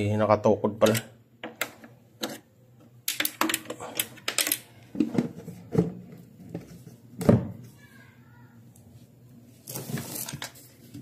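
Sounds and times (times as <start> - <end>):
rustling scrape of handling: 8.9 - 11.0.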